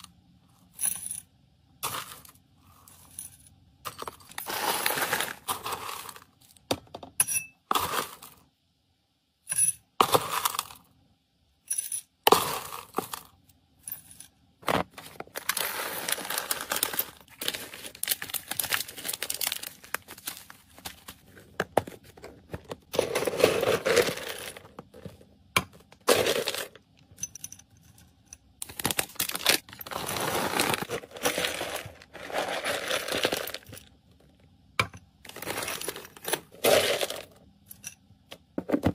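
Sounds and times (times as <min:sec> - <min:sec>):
plastic bags crinkling: 0:04.2 - 0:06.2, 0:14.8 - 0:24.8, 0:28.6 - 0:33.9, 0:35.3 - 0:37.3.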